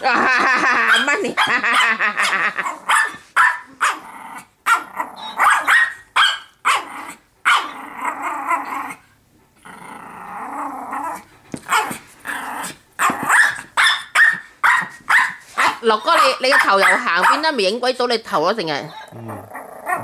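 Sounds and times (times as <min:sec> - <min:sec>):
small dog barking: 0:00.9 - 0:02.0, 0:02.8 - 0:04.0, 0:04.6 - 0:07.8, 0:11.7 - 0:12.0, 0:13.0 - 0:17.6
dog growling: 0:04.0 - 0:05.4, 0:06.8 - 0:09.0, 0:09.6 - 0:13.3, 0:18.9 - 0:20.0.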